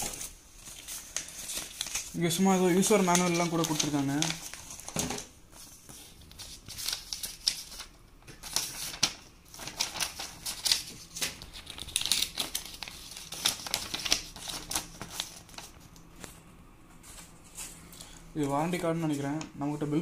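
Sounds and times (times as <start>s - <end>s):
paper rustling and flicking: 0.0s - 16.4s.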